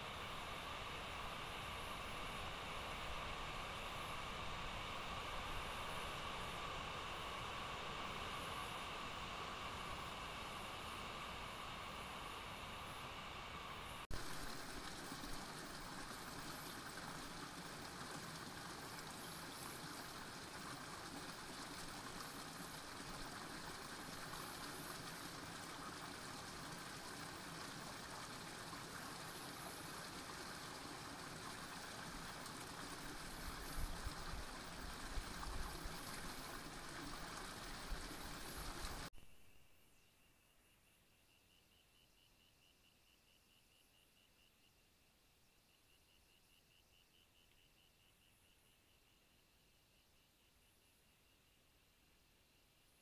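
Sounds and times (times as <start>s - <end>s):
running water rushing: 14.1s - 39.1s.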